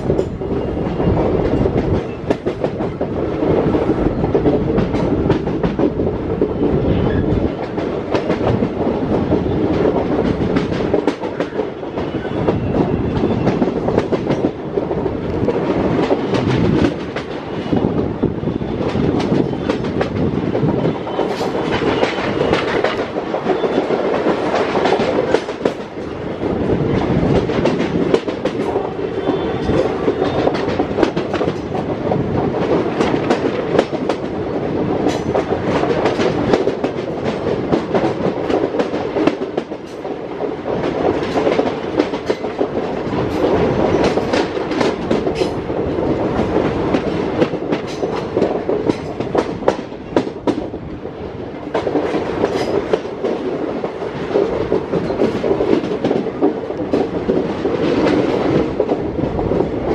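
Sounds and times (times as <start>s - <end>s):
train wheels rumbling on rails: 0.0s - 59.9s
clatter over rail joints: 18.9s - 50.8s, 51.6s - 59.9s.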